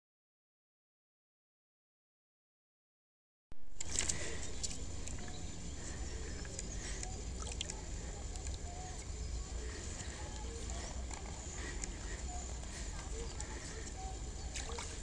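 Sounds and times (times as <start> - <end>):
faint bird chirps: 3.8 - 15.0.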